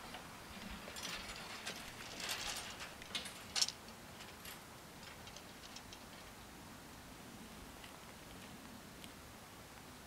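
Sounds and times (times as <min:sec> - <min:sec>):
barrier mechanism clicks and rattles: 0:00.6 - 0:06.3.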